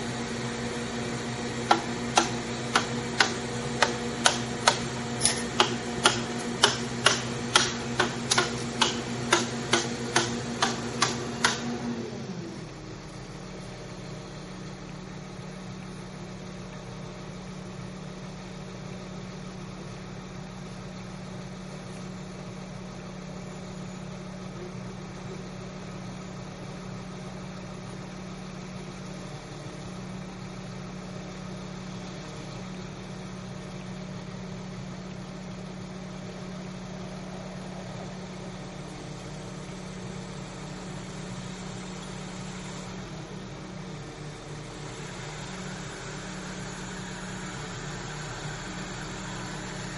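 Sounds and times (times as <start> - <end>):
crane engine running: 0.0 - 49.9
loud regular clicking: 1.7 - 11.7.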